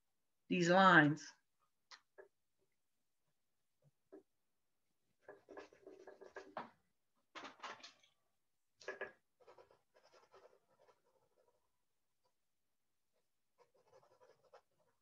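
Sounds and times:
eraser and pencil rubbing paper: 0:05.2 - 0:06.6, 0:09.2 - 0:15.0.

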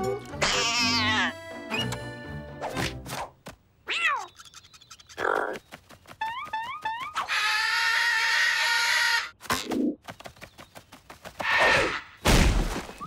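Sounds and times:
cartoon squawking cry: 0:00.4 - 0:01.4.

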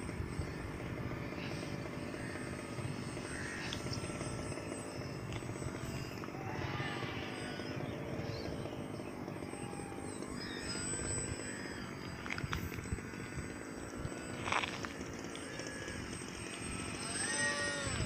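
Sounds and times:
model plane electric motor buzzing: 0:00.0 - 0:18.0.

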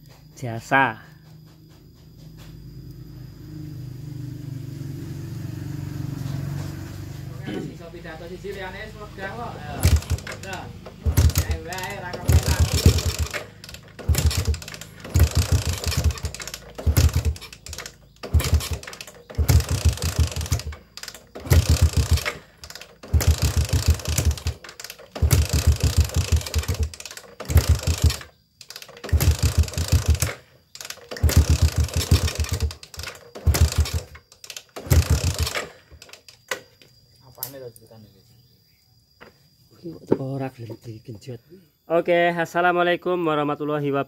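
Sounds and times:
motorcycle engine kick-start cranking: 0:06.0 - 0:36.7.

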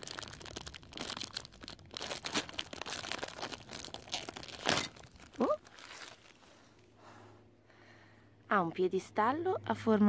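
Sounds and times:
plastic bag crinkling and tearing: 0:00.0 - 0:06.6.

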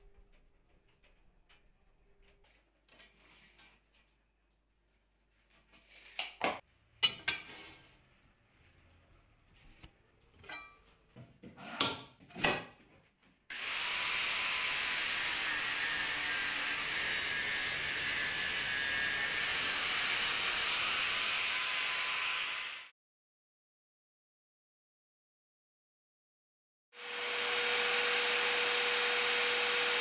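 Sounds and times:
angle grinder cutting steel: 0:13.5 - 0:22.9, 0:27.0 - 0:30.0.

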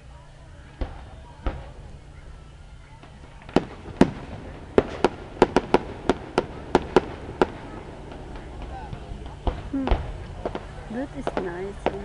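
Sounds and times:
fireworks bangs with echo: 0:00.6 - 0:12.0.

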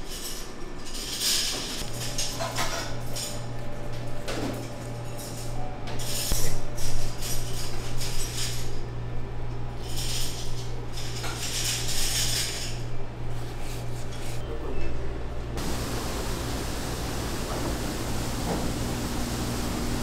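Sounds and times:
utensils and dishes clinking: 0:00.0 - 0:08.9, 0:09.8 - 0:13.0
steady low hum: 0:01.8 - 0:20.0.

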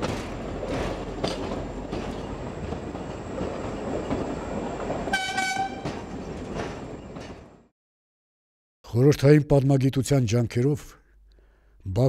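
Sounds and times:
wheel clacks: 0:00.0 - 0:07.4
train wheels rumbling: 0:00.0 - 0:07.7
train horn blast: 0:05.1 - 0:06.0.

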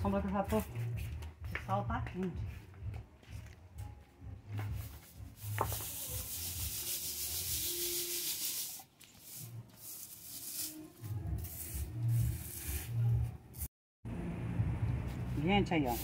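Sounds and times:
seeds rustling in metal basin: 0:05.4 - 0:13.2, 0:15.6 - 0:16.0.

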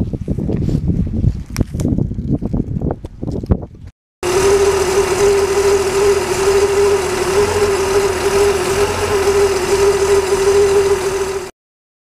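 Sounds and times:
truck engine idling: 0:04.2 - 0:11.5.

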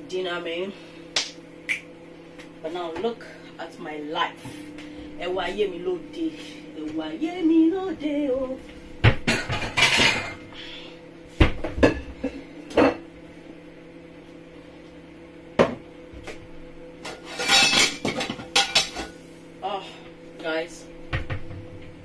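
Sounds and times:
crockery rattling and scraping: 0:17.1 - 0:19.2.

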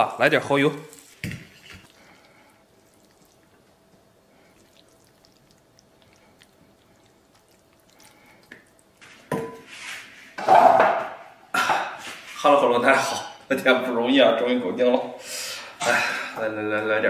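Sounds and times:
metal tableware clanking: 0:10.4 - 0:11.1.

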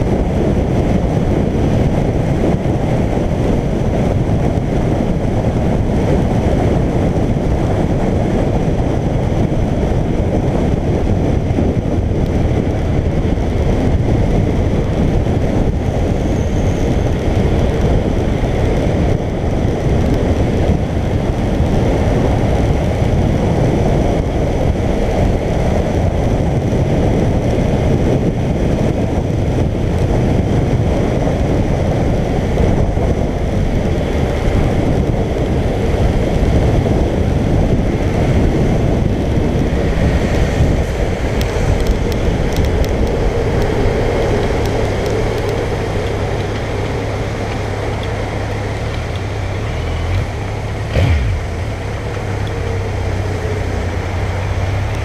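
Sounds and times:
motorcycle engine cruising: 0:00.0 - 0:55.0
wind on microphone: 0:00.0 - 0:55.0.

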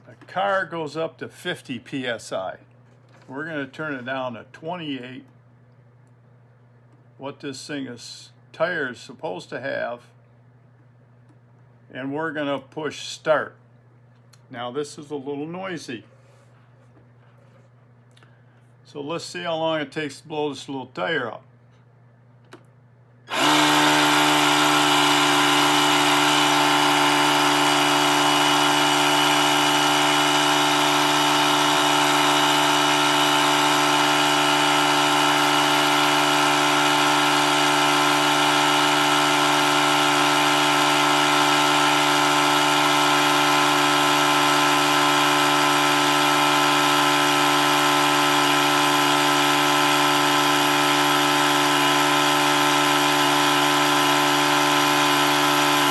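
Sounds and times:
tire inflator compressor humming: 0:23.2 - 0:55.9.

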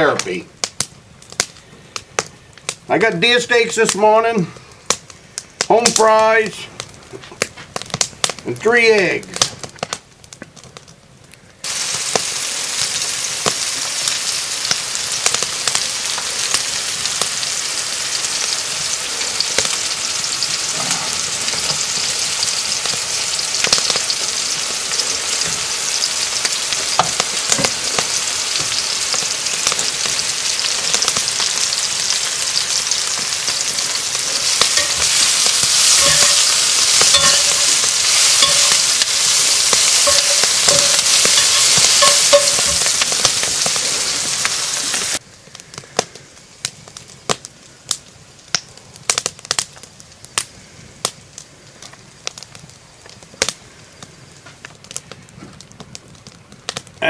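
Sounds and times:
steaks sizzling in skillet: 0:11.6 - 0:45.2
fries bubbling in hot oil: 0:11.6 - 0:53.8
onions frying in skillet: 0:11.6 - 0:57.0
utensils clicking and scraping pans: 0:20.4 - 0:23.0, 0:23.6 - 0:30.2, 0:30.8 - 0:45.2.

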